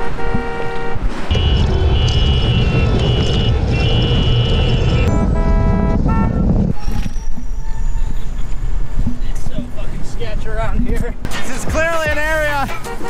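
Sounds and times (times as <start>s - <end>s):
vehicle horn: 0.0s - 6.8s, 12.7s - 13.0s
road and wind rumble: 0.0s - 13.0s
street sound: 0.0s - 13.0s.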